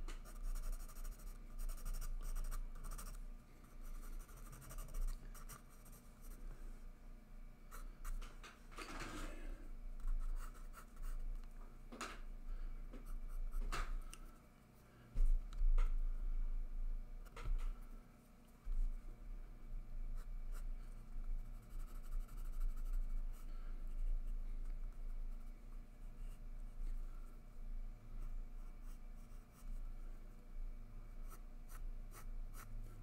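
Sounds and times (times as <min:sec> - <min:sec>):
steady low hum: 0:00.0 - 0:33.0
pencil scratching on paper: 0:00.2 - 0:03.2, 0:03.8 - 0:06.4.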